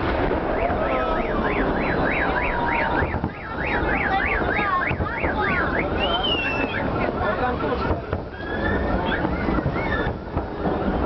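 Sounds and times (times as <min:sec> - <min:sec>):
crowd noise: 0:00.0 - 0:11.0
fireworks: 0:00.0 - 0:11.0
electronic alarm warbling: 0:00.5 - 0:06.9.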